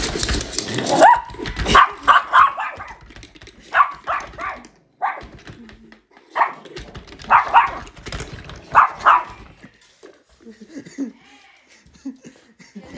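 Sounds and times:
dog barking: 0.9s - 3.0s, 3.7s - 5.4s, 6.3s - 7.9s, 8.7s - 9.5s.

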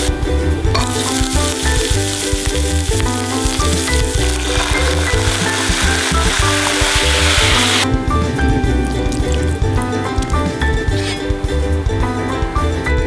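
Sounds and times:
background music with steady beat: 0.0s - 13.0s
oil sizzling in a frying pan: 0.7s - 7.8s.

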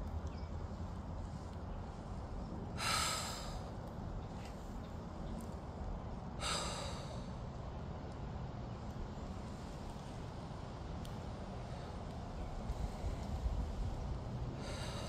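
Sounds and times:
deep breaths out: 6.4s - 7.3s
wind rumble on microphone: 7.4s - 15.0s.

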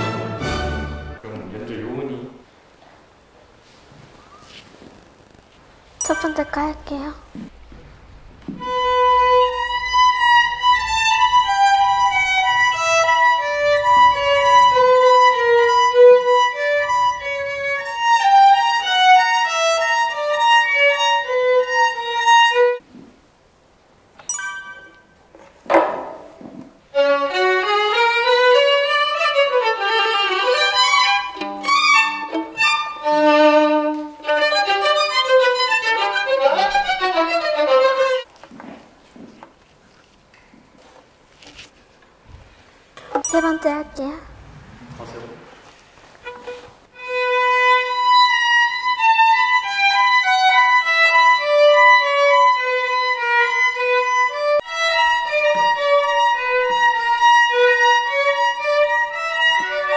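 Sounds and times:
solo violin melody: 8.6s - 22.8s, 26.9s - 38.2s, 46.2s - 59.9s.

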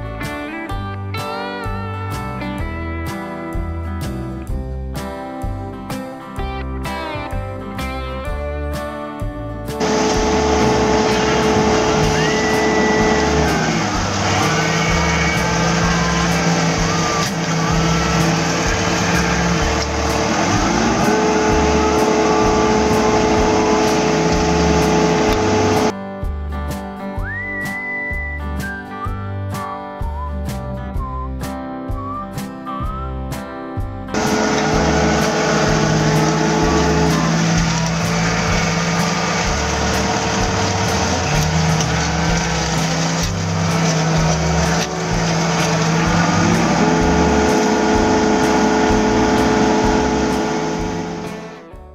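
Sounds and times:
excavator engine and hydraulics whining: 9.7s - 26.0s, 34.1s - 51.8s.

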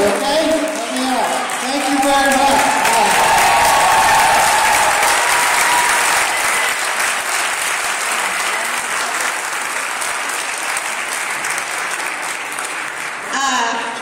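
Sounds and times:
crowd applauding: 0.0s - 13.4s.

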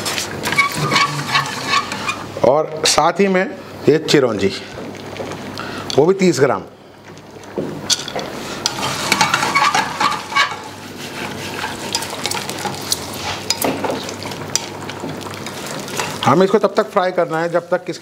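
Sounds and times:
wooden spatula scraping metal pan: 0.0s - 2.3s, 8.4s - 13.5s
ghee frying: 0.0s - 18.0s.

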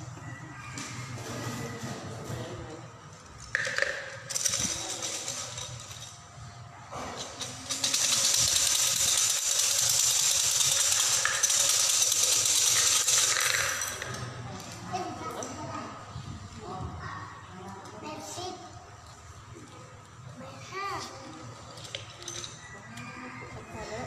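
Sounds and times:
sticks clattering in cylinder: 3.5s - 6.1s, 7.4s - 14.3s.

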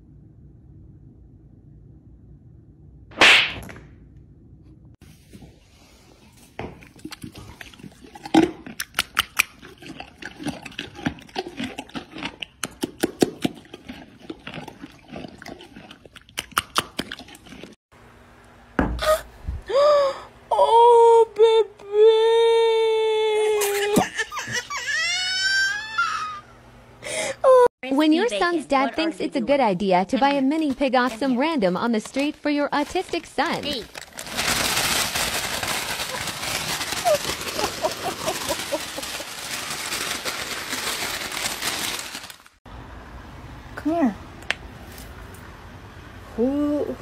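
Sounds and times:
horse lips smacking: 6.8s - 17.8s.

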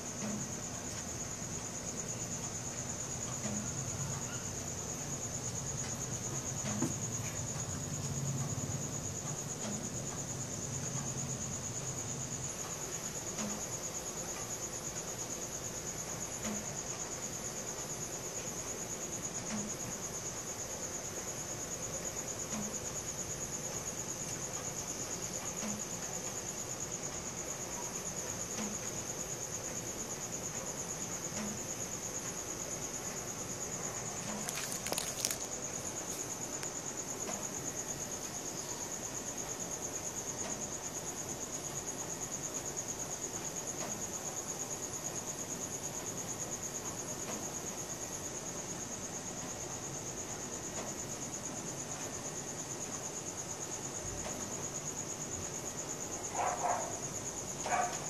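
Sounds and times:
crickets trilling: 0.0s - 58.0s
cluster of clicks: 34.1s - 37.4s.

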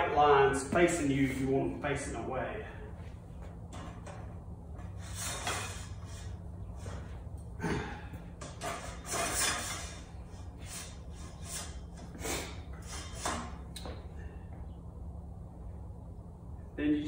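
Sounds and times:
steady low hum: 0.0s - 17.0s
handles scraping in steel frame: 3.4s - 7.2s, 8.3s - 13.7s.

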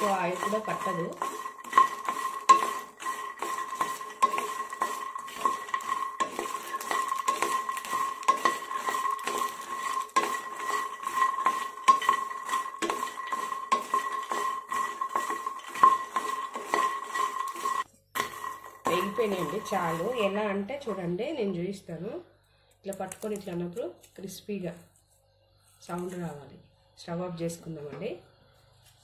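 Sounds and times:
seeds rattling against pan: 0.0s - 21.1s
spatula scraping a pan: 0.0s - 21.6s.

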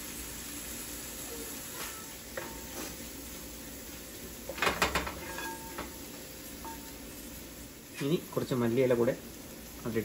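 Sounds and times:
meat sizzling in a pan: 0.0s - 10.0s
wooden spatula scraping a pan: 1.8s - 3.2s, 4.5s - 6.0s.

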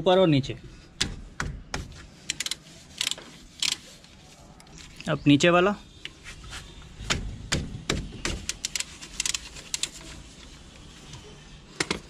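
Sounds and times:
socket wrench clicking: 2.3s - 3.8s.

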